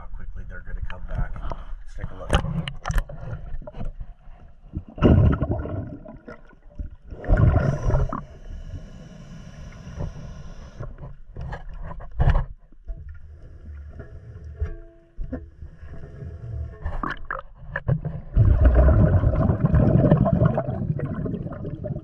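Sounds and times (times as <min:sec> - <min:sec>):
bubbling bursts: 0:04.9 - 0:08.3, 0:18.3 - 0:22.0.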